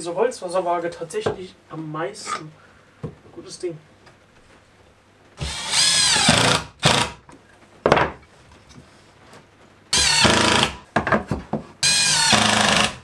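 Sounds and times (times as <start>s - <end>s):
cordless drill driving screws: 5.4s - 7.2s, 10.0s - 10.8s, 11.8s - 13.0s.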